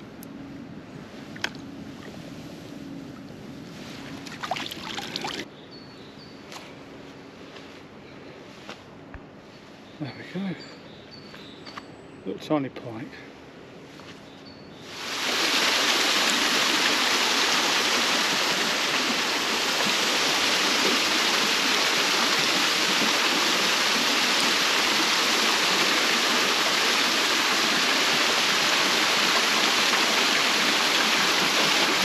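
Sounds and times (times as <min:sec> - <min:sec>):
rush of running water: 0:04.1 - 0:05.5, 0:14.9 - 0:32.0.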